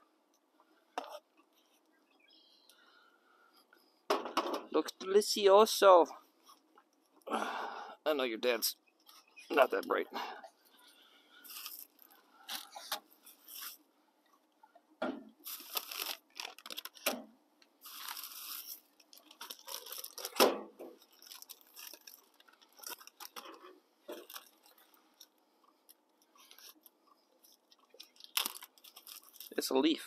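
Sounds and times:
plastic bags crinkling: 11.4s - 13.8s, 15.4s - 17.2s, 17.8s - 30.0s.

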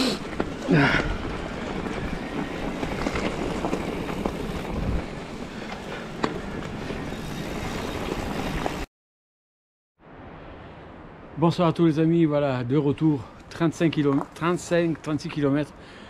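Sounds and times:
wind buffeting microphone: 0.3s - 8.8s.

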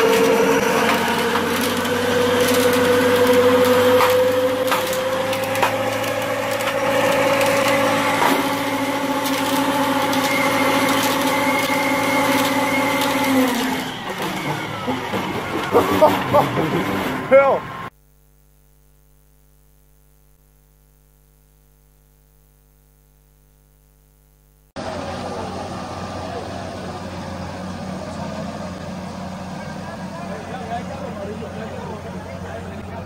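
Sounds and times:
crackling rattle: 0.0s - 14.6s
tractor machine whine: 0.0s - 18.0s, 24.8s - 33.0s.

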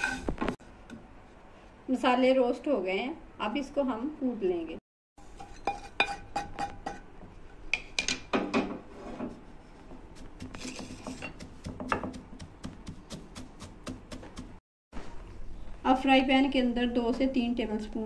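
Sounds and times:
wooden pestle pounding: 10.0s - 14.6s.

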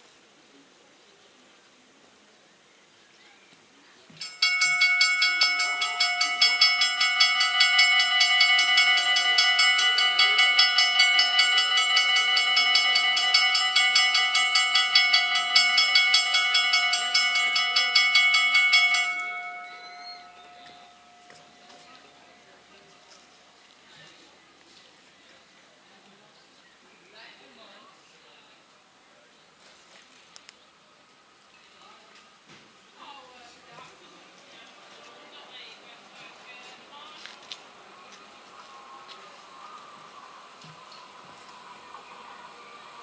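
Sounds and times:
level crossing warning bells ringing: 4.2s - 23.6s, 34.6s - 43.0s.

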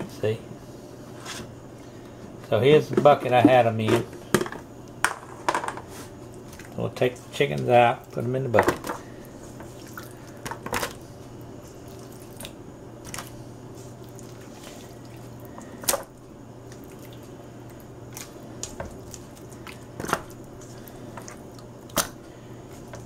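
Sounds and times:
steady low hum: 0.0s - 23.0s
wet squishing and dripping: 6.3s - 23.0s.

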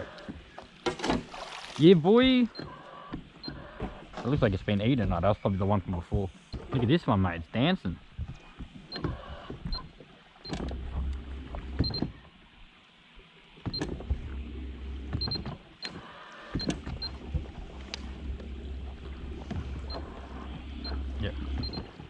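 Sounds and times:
electric trolling motor humming: 0.0s - 0.8s, 8.0s - 22.0s
knocks against boat: 21.5s - 22.0s.

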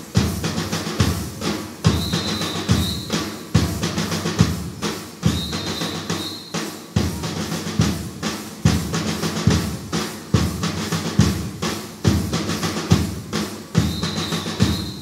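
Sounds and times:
large drum beating: 7.0s - 15.0s.

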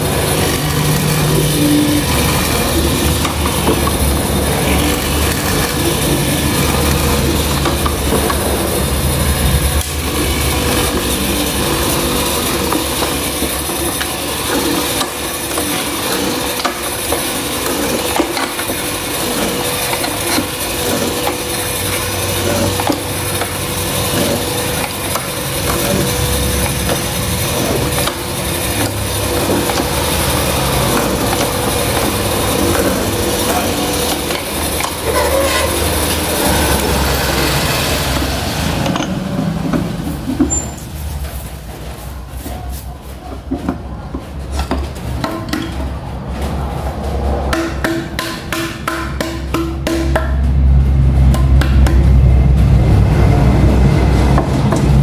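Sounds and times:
electric motor humming: 0.0s - 39.6s
bit crunching and scraping wood: 0.0s - 47.5s.

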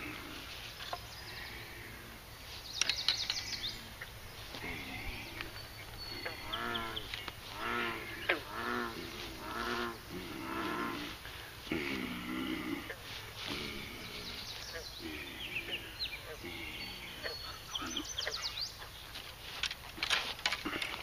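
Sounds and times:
bullfrog croaking: 3.8s - 18.5s.

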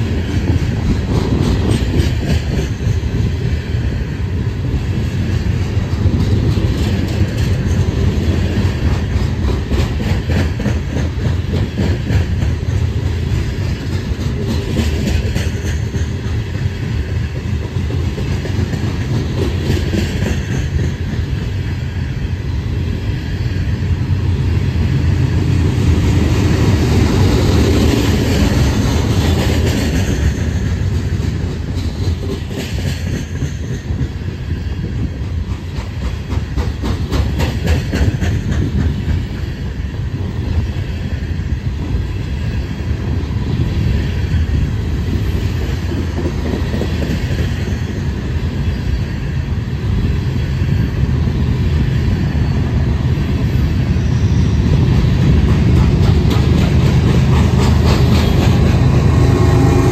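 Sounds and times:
freight train rumbling: 0.0s - 59.9s
wheels clicking over rail joints: 34.9s - 39.5s, 54.8s - 59.7s.

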